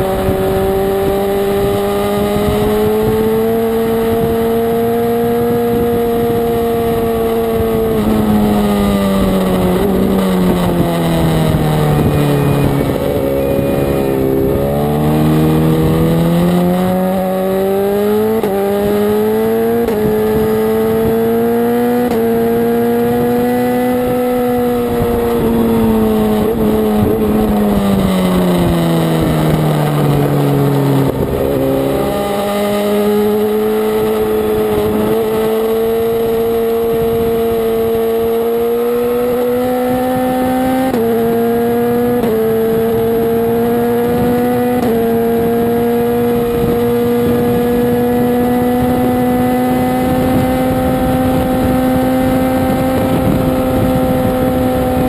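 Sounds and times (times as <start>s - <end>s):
motorcycle engine at high revs: 0.0s - 55.0s.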